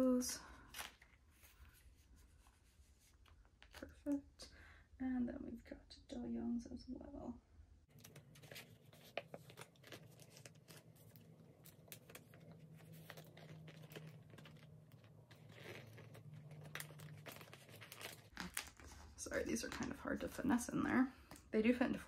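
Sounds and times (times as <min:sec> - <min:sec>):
plastic sleeves crinkling: 0:07.9 - 0:20.5
small scrapes and clicks: 0:08.0 - 0:19.1.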